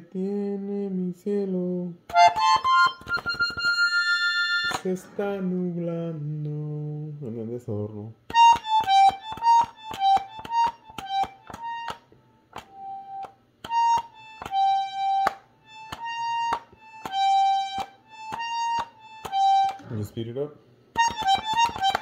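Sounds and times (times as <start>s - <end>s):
accordion button clicks: 2.1s - 4.9s, 8.3s - 20.0s, 21.0s - 22.0s
button accordion playing: 2.1s - 5.0s, 8.3s - 20.2s, 20.9s - 22.0s.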